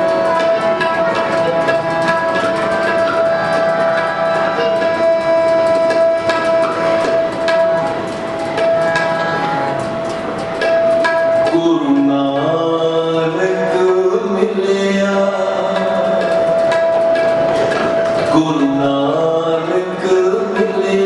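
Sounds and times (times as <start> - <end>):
harmonium melody: 0.0 - 21.0
tabla strokes: 0.0 - 21.0
men singing: 18.3 - 21.0.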